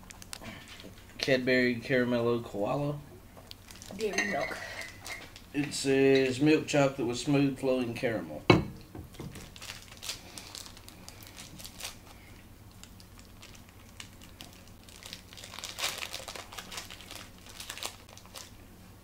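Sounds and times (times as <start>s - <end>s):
plastic wrapper crinkling and tearing: 0.0s - 1.3s, 3.4s - 5.6s, 9.2s - 18.6s.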